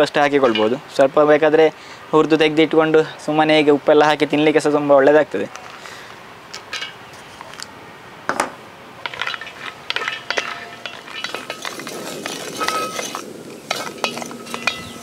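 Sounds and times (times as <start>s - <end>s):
nuts clinking into metal pan: 9.0s - 15.0s
spatula scraping metal pan: 9.0s - 15.0s.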